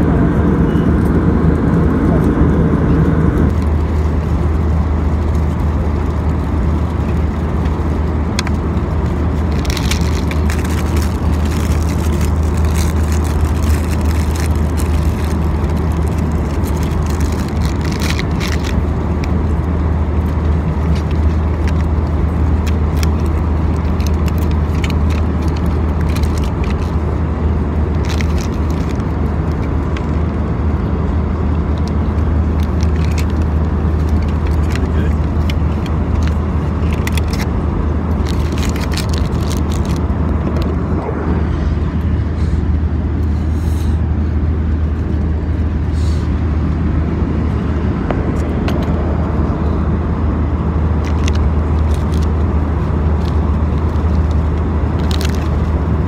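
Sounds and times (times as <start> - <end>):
vehicle cabin engine rumble: 0.0 - 56.0
light clicks and rustles: 31.7 - 40.8.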